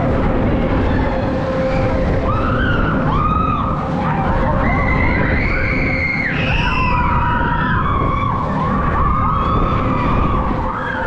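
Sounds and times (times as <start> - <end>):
fairground ride rumbling: 0.0 - 11.0.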